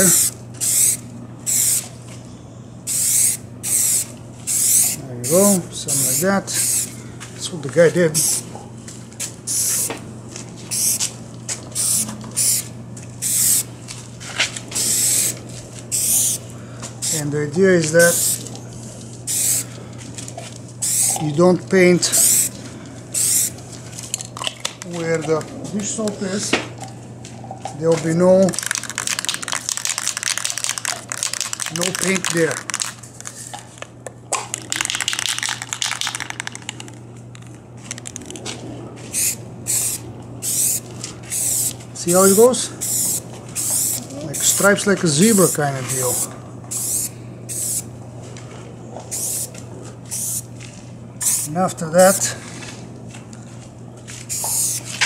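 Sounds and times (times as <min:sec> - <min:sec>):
spray paint can hissing: 0:00.0 - 0:01.9, 0:02.9 - 0:06.9, 0:09.5 - 0:09.9, 0:10.7 - 0:11.1, 0:11.7 - 0:13.7, 0:14.8 - 0:16.4, 0:18.0 - 0:18.5, 0:19.3 - 0:19.6, 0:20.8 - 0:21.2, 0:22.1 - 0:22.5, 0:23.2 - 0:23.6, 0:28.5 - 0:33.4, 0:34.6 - 0:36.9, 0:39.1 - 0:47.9, 0:49.1 - 0:50.4, 0:51.2 - 0:51.6, 0:54.3 - 0:55.0.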